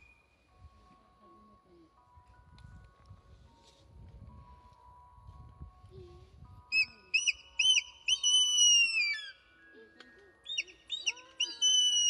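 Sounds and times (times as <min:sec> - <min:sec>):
eagle whistling calls: 0:06.7 - 0:09.5, 0:10.4 - 0:12.0.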